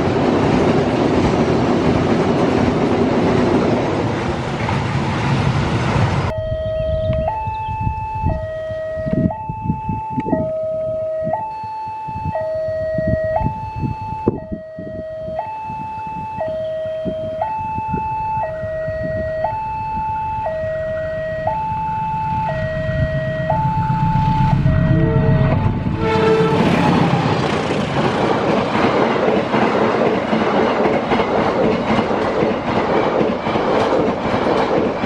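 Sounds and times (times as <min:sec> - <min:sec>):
low rumble of train: 0:00.0 - 0:35.0
level crossing two-tone alarm: 0:06.3 - 0:25.8.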